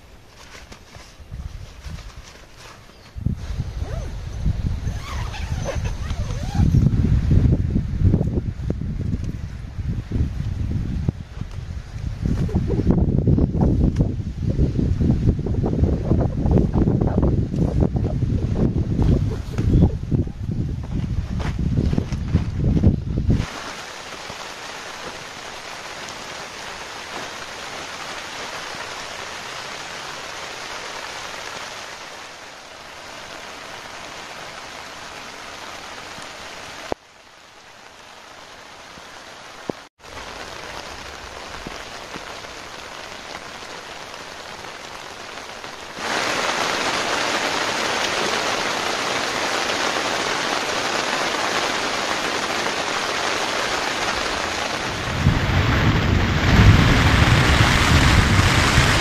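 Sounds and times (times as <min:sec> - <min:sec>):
steady rain falling: 0:00.0 - 0:59.0.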